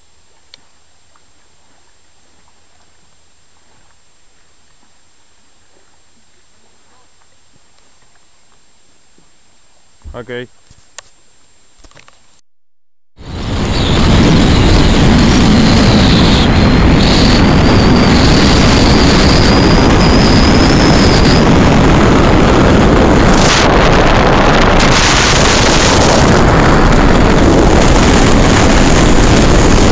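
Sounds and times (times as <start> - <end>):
faint high whine: 0.0 - 12.4, 13.2 - 29.9
wind buffeting microphone: 13.2 - 29.9.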